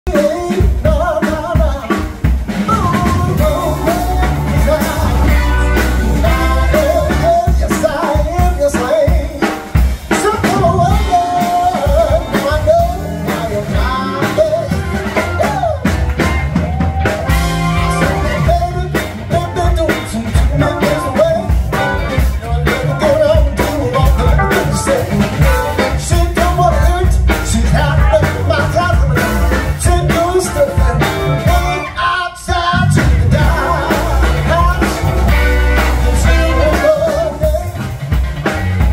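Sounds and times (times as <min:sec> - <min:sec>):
drums: 0:00.0 - 0:38.9
live band playing: 0:00.0 - 0:38.9
saxophone melody: 0:02.7 - 0:07.6, 0:10.4 - 0:16.1, 0:17.3 - 0:18.9, 0:24.1 - 0:26.3, 0:33.4 - 0:37.6
trumpet melody: 0:03.3 - 0:08.1, 0:10.4 - 0:16.4, 0:17.2 - 0:22.4, 0:24.0 - 0:26.5, 0:33.4 - 0:37.6.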